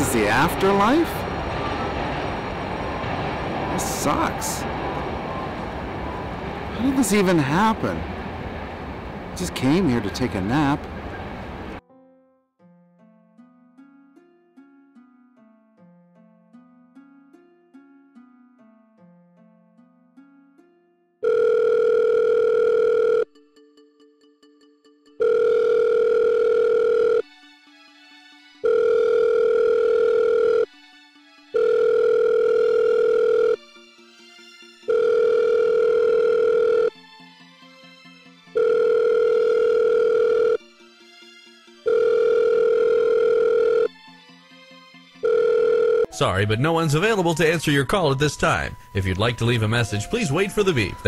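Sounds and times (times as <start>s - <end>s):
soft music: 11.8s - 51.0s
telephone ringing: 21.2s - 23.4s, 25.2s - 27.3s, 28.6s - 30.8s, 31.6s - 33.6s, 34.8s - 37.0s, 38.6s - 40.7s, 41.8s - 44.0s, 45.2s - 46.1s.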